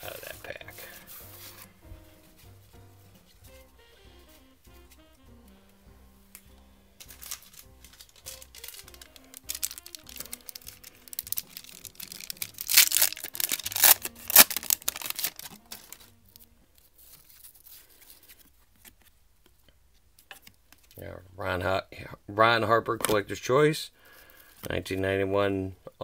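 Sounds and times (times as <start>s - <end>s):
foil wrapper tearing and crinkling: 7.0s - 18.4s.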